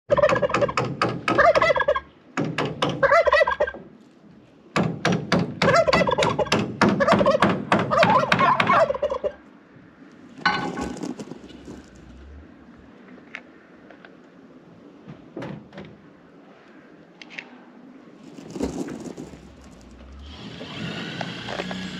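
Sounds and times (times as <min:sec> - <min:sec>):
turkey gobbling: 0:00.1 - 0:02.1, 0:02.9 - 0:03.8, 0:05.7 - 0:09.5.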